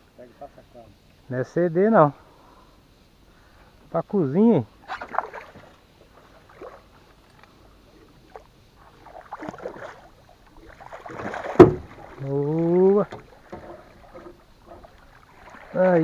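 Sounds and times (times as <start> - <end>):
fish thrashing in water: 8.3 - 16.0
sharp knock: 11.6 - 11.9
man's wordless exclamation: 12.2 - 13.1.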